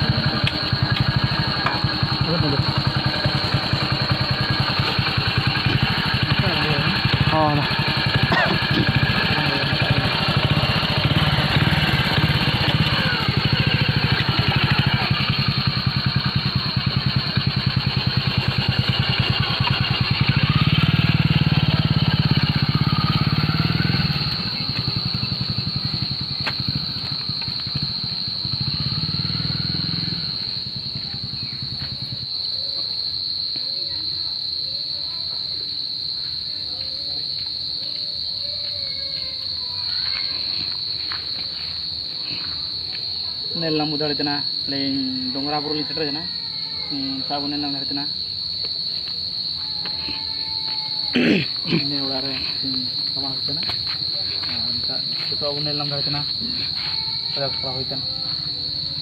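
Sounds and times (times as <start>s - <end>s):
motorcycle engine running: 0.0s - 34.1s, 36.7s - 59.0s
crickets chirring: 0.0s - 59.0s
insects droning: 0.0s - 59.0s
people talking: 1.4s - 4.2s, 5.7s - 15.5s, 21.4s - 25.2s, 33.6s - 40.7s, 41.4s - 48.1s, 48.9s - 59.0s.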